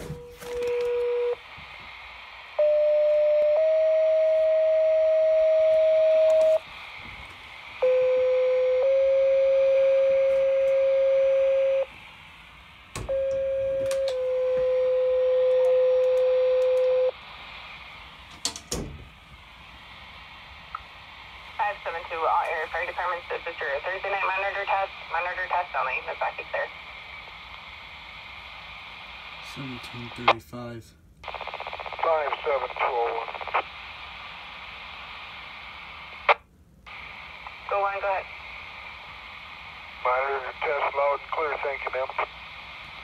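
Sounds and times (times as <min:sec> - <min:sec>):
radio hiss: 0:01.3 - 0:03.6, 0:06.1 - 0:13.0, 0:14.2 - 0:18.3, 0:19.2 - 0:43.0.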